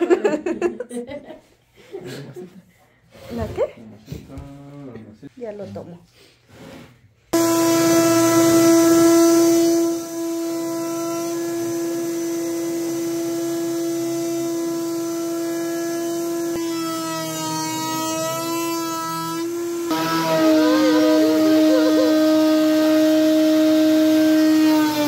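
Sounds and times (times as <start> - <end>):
router whining while cutting: 7.4 - 25.0.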